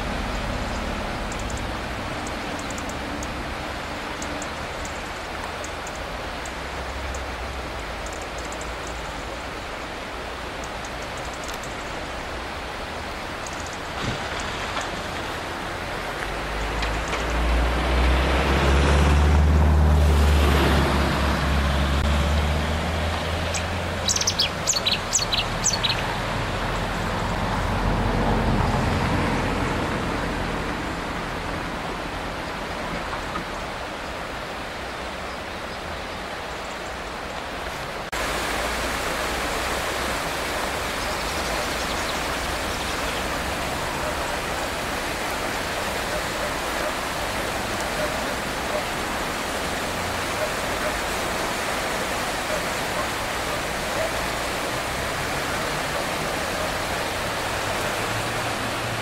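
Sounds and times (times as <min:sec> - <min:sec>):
river rushing: 0:00.0 - 0:59.0
bird chirping: 0:23.4 - 0:26.2, 0:41.0 - 0:43.3.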